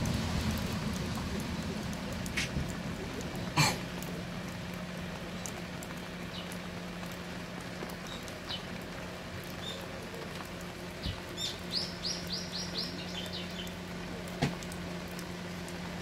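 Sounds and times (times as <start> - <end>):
heavy rain and dripping water: 0.0 - 16.0
bird chirping: 11.0 - 13.8.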